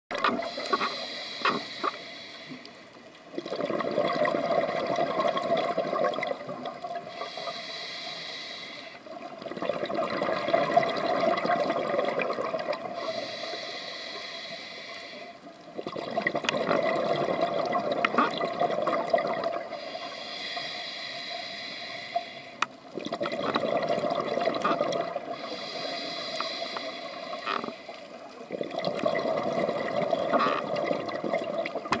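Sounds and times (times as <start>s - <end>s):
regulator inhalation hiss: 0.4s - 3.0s, 7.0s - 9.1s, 12.9s - 15.5s, 19.7s - 22.7s, 25.3s - 28.2s
exhaled bubbles underwater: 3.3s - 7.5s, 9.0s - 13.7s, 15.5s - 20.1s, 22.8s - 32.0s.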